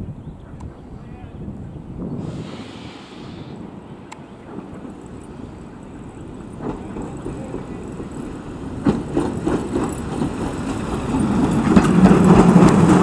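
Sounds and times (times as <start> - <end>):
steam locomotive running: 2.1 - 13.0
wheels clicking over rail joints: 4.1 - 13.0.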